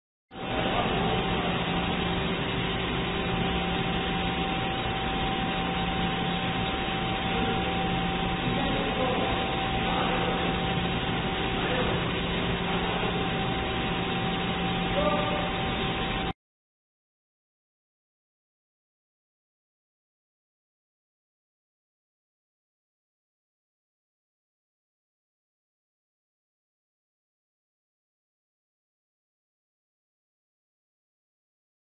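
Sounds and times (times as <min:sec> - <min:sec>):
lathe machine hum: 0:00.4 - 0:16.3.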